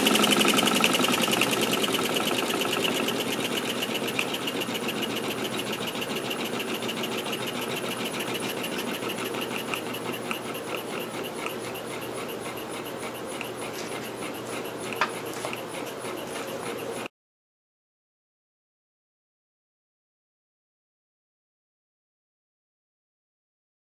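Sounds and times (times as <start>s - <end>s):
steam engine clicking and puffing: 0.0s - 17.1s.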